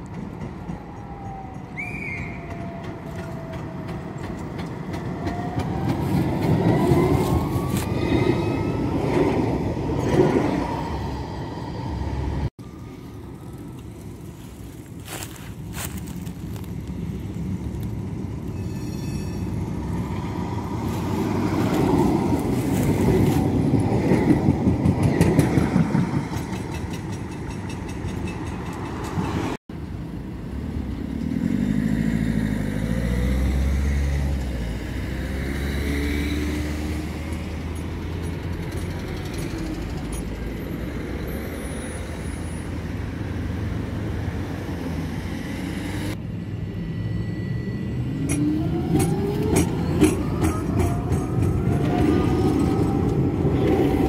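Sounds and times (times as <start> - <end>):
tram wheels rumbling on rails: 0.0 - 54.0
tram motors whining: 36.5 - 54.0.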